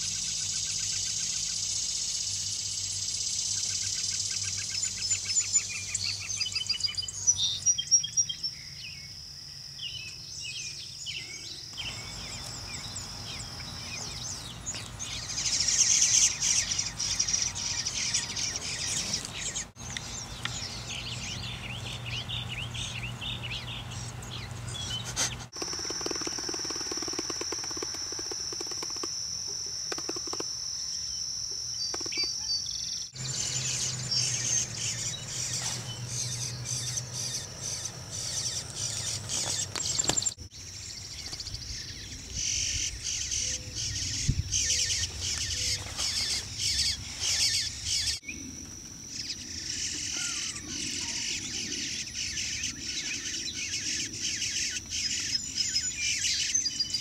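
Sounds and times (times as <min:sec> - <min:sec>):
high-pitched insect buzz: 0:00.0 - 0:06.3, 0:11.5 - 0:21.5, 0:25.5 - 0:40.4
birds chirping: 0:00.0 - 0:09.2, 0:09.8 - 0:57.0.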